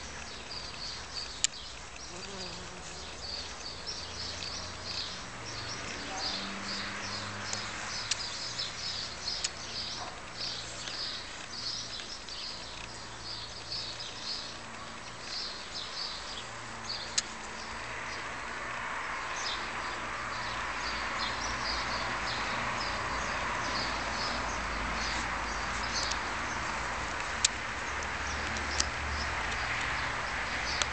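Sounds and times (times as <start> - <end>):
small birds chirping: 0.0 - 30.9
sharp clicks: 0.2 - 3.0, 7.5 - 15.5.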